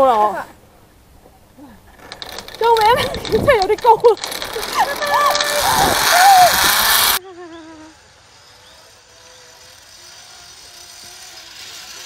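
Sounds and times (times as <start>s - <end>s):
zip-line trolley whirring on cable: 1.9s - 12.0s
person shouting: 4.8s - 6.7s.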